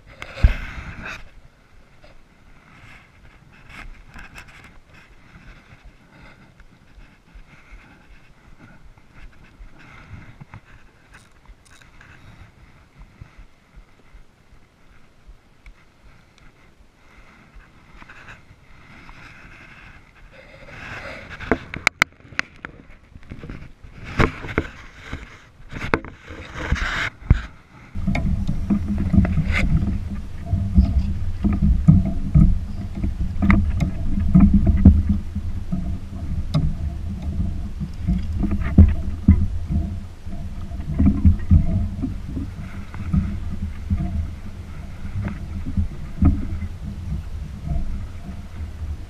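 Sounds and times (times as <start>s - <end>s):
gear knocking against hull: 28.0s - 49.0s.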